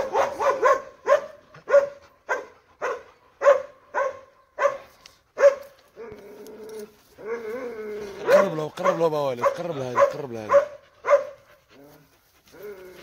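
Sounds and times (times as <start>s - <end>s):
dog barking: 0.0s - 5.8s, 8.2s - 11.4s.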